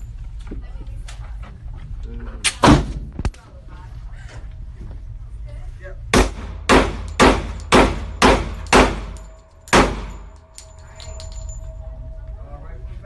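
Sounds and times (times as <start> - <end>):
pistol shots echoing indoors: 6.2 - 11.3.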